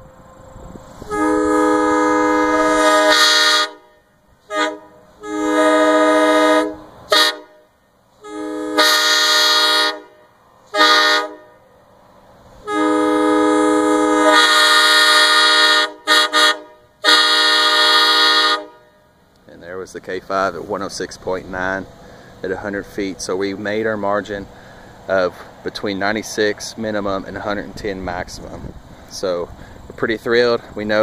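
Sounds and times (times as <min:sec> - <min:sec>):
train horn blasts: 0:00.0 - 0:11.8, 0:12.6 - 0:19.2.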